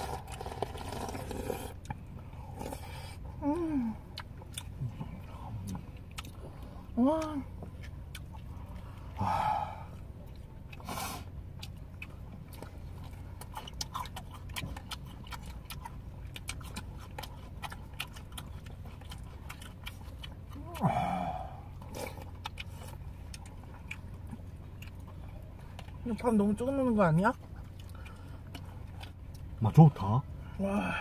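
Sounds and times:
people chewing: 0.0 - 31.0
steady low hum: 0.0 - 31.0.

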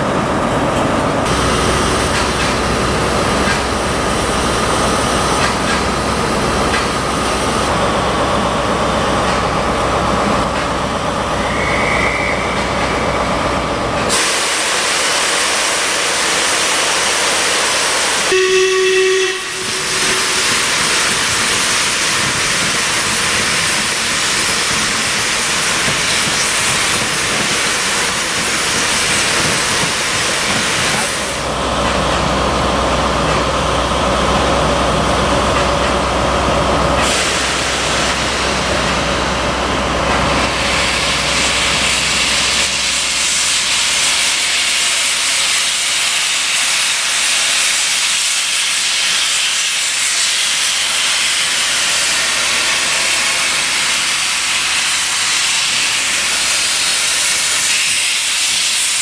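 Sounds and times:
steam locomotive hissing: 0.0 - 59.0
short steam whistle: 11.4 - 13.4, 18.2 - 21.2.

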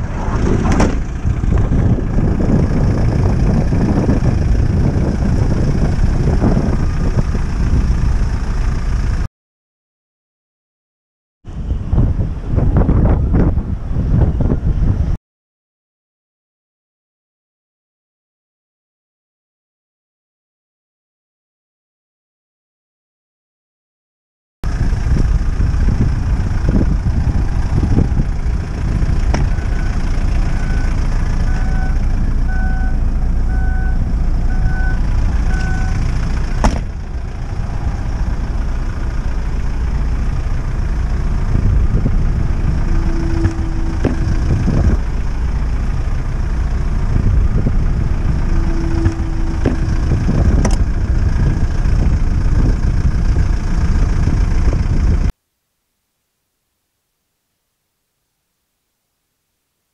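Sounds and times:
low vehicle rumble: 0.0 - 9.3, 11.5 - 15.2, 24.6 - 55.3
short beeps: 29.5 - 36.0, 42.8 - 44.8, 48.5 - 50.2.

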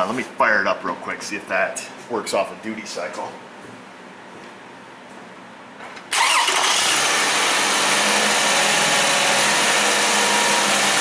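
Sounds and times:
car engine starting and idling: 6.1 - 10.0.

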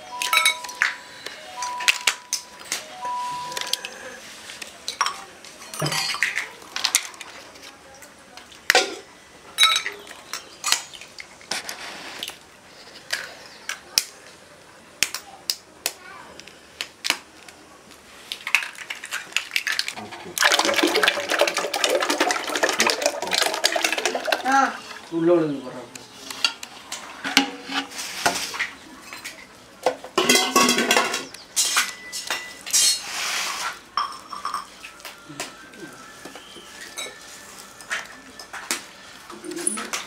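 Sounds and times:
liquid pouring into metal pot: 20.3 - 25.1.

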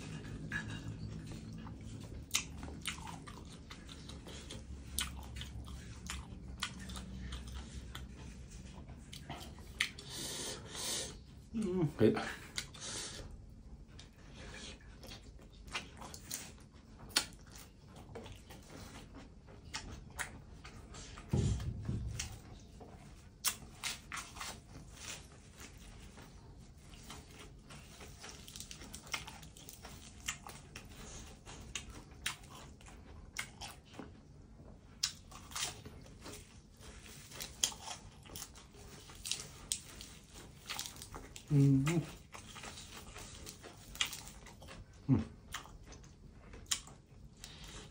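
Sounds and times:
chewing and crunching: 0.0 - 47.9
dull low thump: 21.2 - 22.8.

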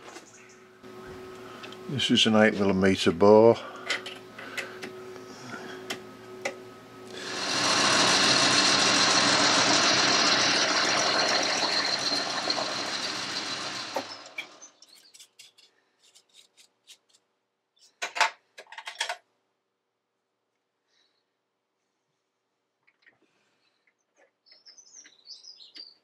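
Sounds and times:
metal lathe running: 7.0 - 14.7.

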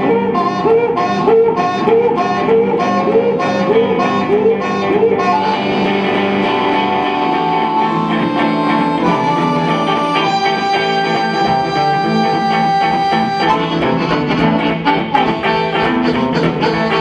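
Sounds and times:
electric guitar strumming: 0.0 - 17.0
harmonica: 0.0 - 17.0.

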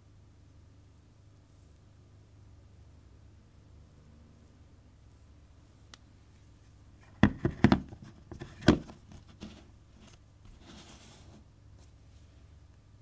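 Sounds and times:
soft brushing of lens: 9.1 - 12.6.

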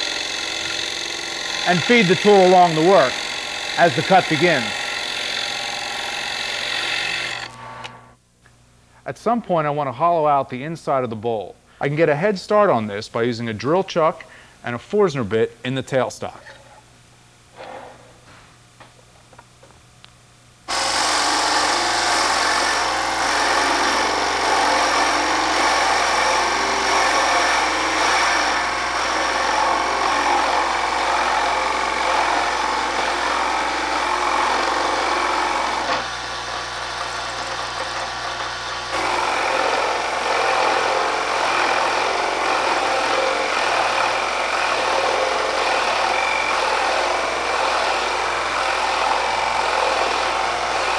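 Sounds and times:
drill bit boring into wood: 0.0 - 7.9, 20.7 - 50.9
wood lathe running: 0.0 - 8.0, 20.7 - 50.9.

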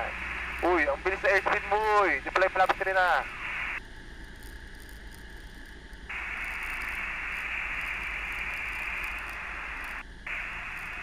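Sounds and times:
radio intercom hiss: 0.0 - 3.8, 6.1 - 11.0
low hum: 0.0 - 11.0.

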